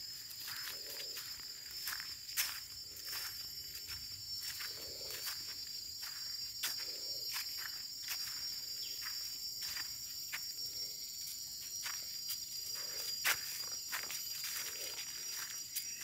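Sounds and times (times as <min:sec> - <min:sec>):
footsteps crunching on dry leaves: 0:00.0 - 0:10.5, 0:11.2 - 0:16.0
high-pitched insect drone: 0:00.0 - 0:16.0.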